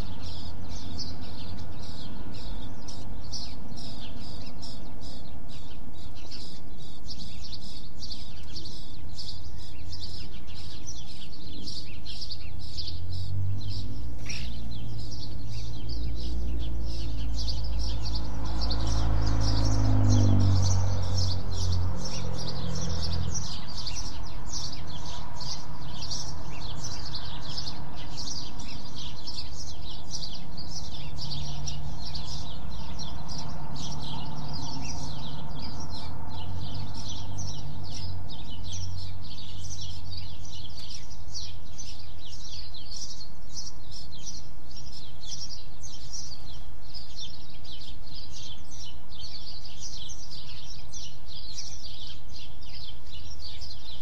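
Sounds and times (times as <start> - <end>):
birds chirping: 0.0 - 54.0
low hum of light traffic: 0.0 - 54.0.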